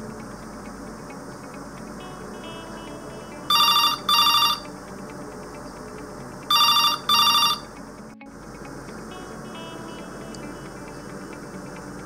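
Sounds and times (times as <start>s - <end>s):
telephone ringing: 2.3s - 4.8s, 6.5s - 7.8s.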